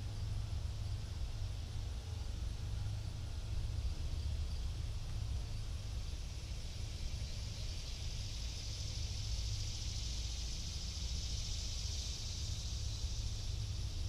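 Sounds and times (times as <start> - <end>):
high-pitched hiss: 5.5 - 14.0.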